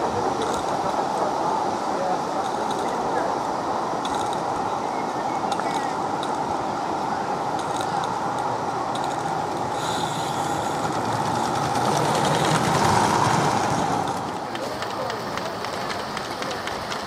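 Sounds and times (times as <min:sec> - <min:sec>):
rapid clicking of train wheels: 0:00.0 - 0:04.8, 0:05.4 - 0:17.0
model steam train running on track: 0:00.0 - 0:17.0.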